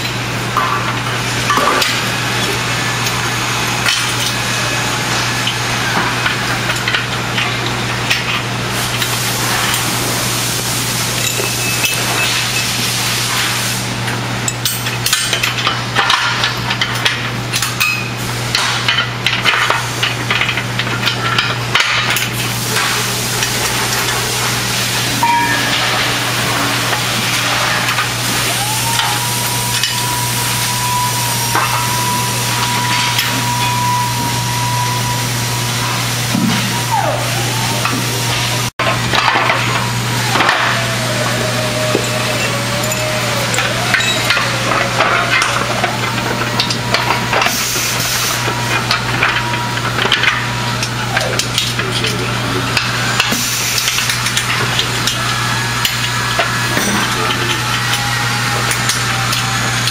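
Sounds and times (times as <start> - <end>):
steady hum and hiss: 0.0 - 59.9
high whine: 17.8 - 59.9.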